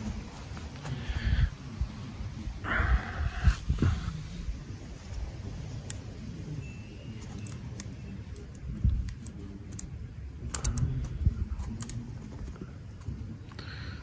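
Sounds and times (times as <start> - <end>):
metallic clicks and scrapes on wire coil: 7.2 - 12.1.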